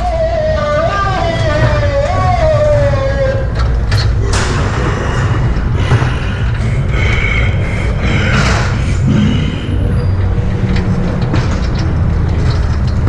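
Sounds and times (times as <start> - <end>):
train car rumbling on track: 0.0 - 13.0
clicks and rattles: 10.2 - 13.0.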